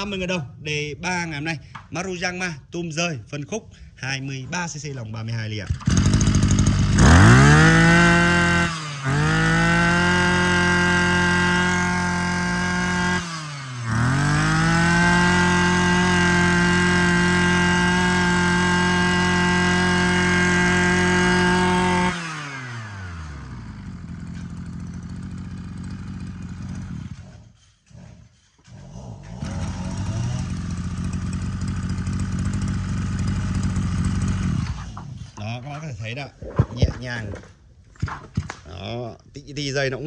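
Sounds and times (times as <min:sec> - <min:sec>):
brush cutter engine revving: 0:05.6 - 0:27.7, 0:28.6 - 0:35.8.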